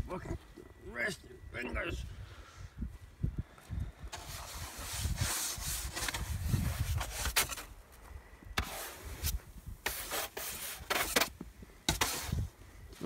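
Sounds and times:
snow brush scraping windshield: 4.1s - 7.7s, 8.6s - 12.5s.

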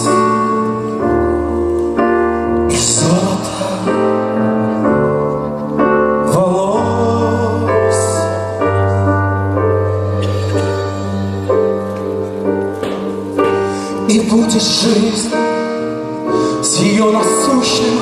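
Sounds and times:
sustained piano and keyboard chords: 0.0s - 18.0s.

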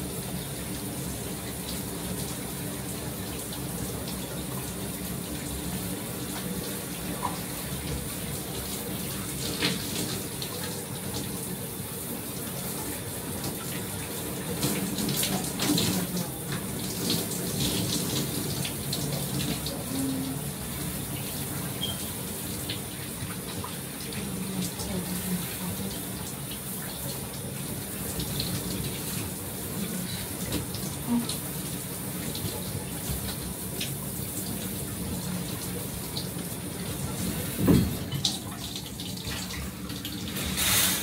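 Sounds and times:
shower spraying water: 0.0s - 41.0s
splashes and knocks: 37.5s - 38.6s.

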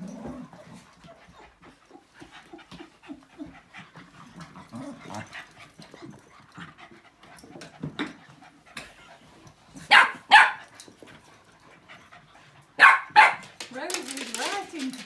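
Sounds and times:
dogs grunting: 0.0s - 7.0s
dogs panting: 0.0s - 15.0s
small dogs play-fighting: 0.0s - 15.0s.

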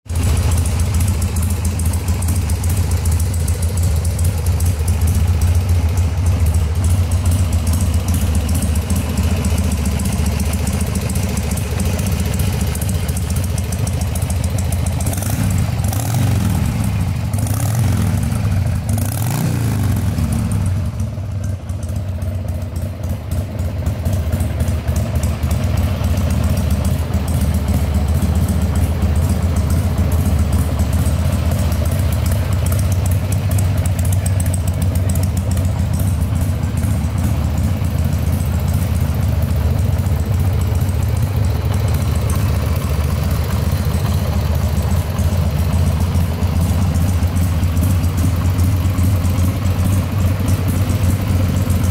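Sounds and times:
motorcycle engine idling and revving: 0.0s - 51.9s.

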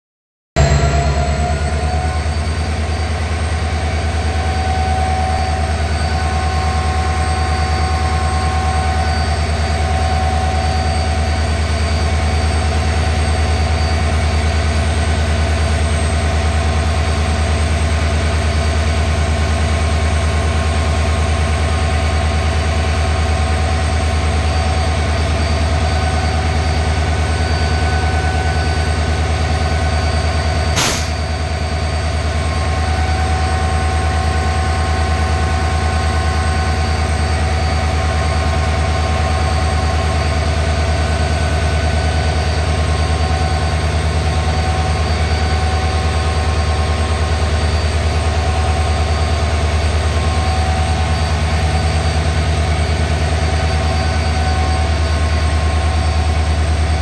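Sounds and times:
locomotive diesel engine running: 0.6s - 57.0s
brief knock: 30.8s - 31.3s.

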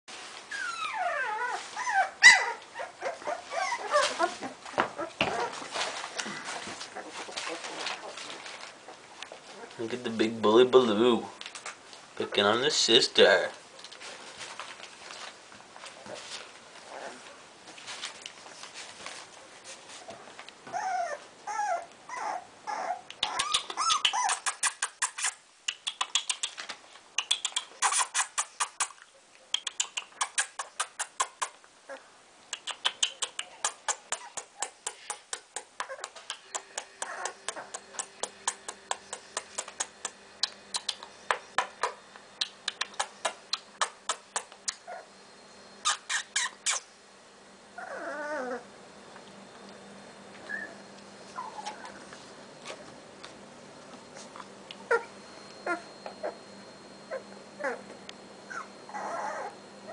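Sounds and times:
puppies whining and yelping: 0.5s - 8.6s, 20.6s - 25.3s, 33.1s - 40.1s, 42.8s - 45.1s, 45.8s - 46.9s, 47.8s - 48.7s, 50.3s - 52.8s, 54.1s - 59.9s.

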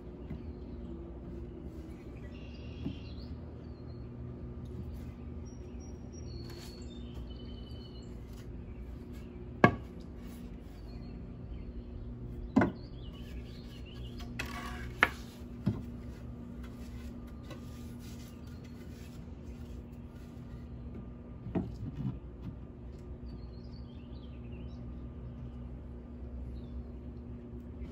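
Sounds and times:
wood scraping on wood: 6.4s - 11.1s, 12.5s - 22.8s
wooden boards knocking: 9.6s - 10.0s, 12.5s - 13.4s.

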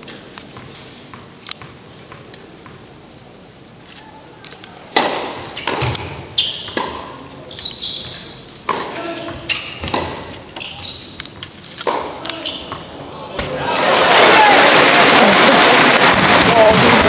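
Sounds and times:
racket striking tennis ball: 4.9s - 7.3s, 8.6s - 10.8s, 11.4s - 13.6s
tennis ball bouncing: 4.9s - 7.3s, 8.6s - 10.4s, 11.2s - 13.6s.

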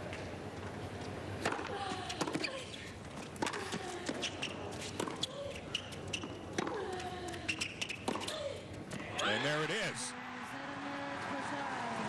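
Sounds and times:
shoes squeaking on court: 2.3s - 6.8s, 7.5s - 8.3s
tennis ball bouncing: 3.3s - 7.0s, 7.6s - 9.0s.

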